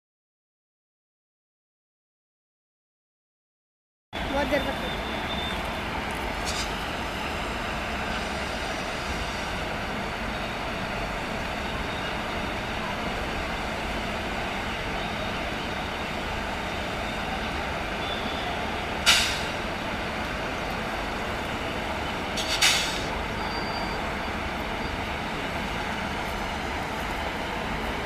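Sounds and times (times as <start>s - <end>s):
electric locomotive noise: 4.2s - 28.0s
air release hisses: 6.4s - 6.8s, 19.0s - 19.6s, 22.4s - 23.1s.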